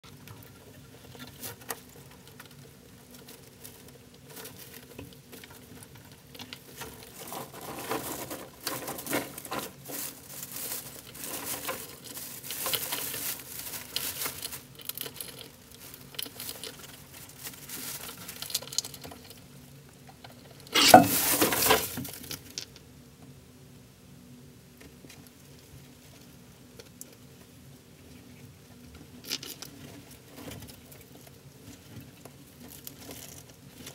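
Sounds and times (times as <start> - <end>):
scratching and patter: 0.1 - 19.4
rats rustling through hay: 0.1 - 22.6, 24.8 - 33.9.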